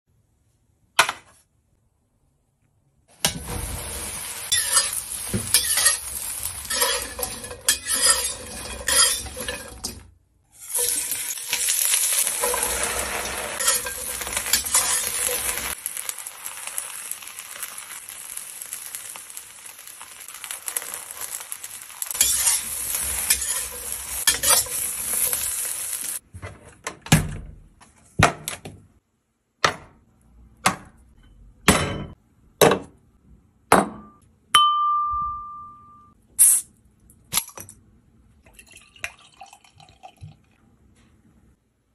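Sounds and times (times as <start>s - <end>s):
utensil scraping wok: 3.2s - 10.0s, 10.6s - 26.2s
food sizzling in hot oil: 3.3s - 26.2s.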